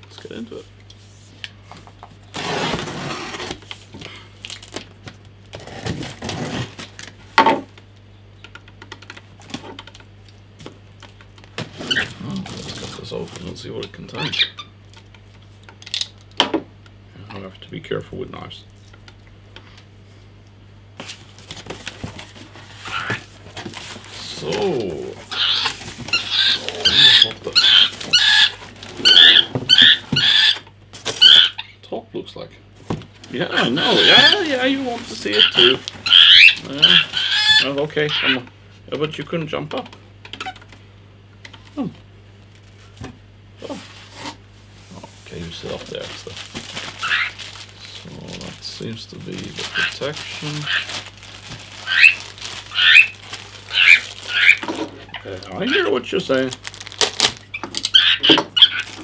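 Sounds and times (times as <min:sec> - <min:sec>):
cardboard scraping: 0:02.3 - 0:03.7, 0:05.5 - 0:07.0
cockatiel shrill calls: 0:25.3 - 0:30.6, 0:31.2 - 0:31.7, 0:35.3 - 0:38.3, 0:47.0 - 0:47.4, 0:51.8 - 0:54.6, 0:57.9 - 0:58.9.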